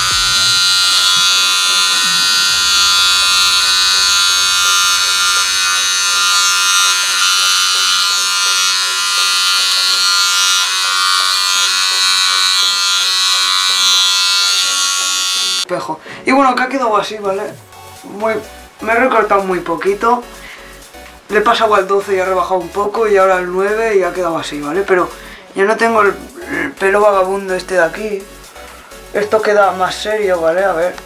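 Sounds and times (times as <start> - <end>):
electric hair clipper buzzing: 0.0 - 15.7.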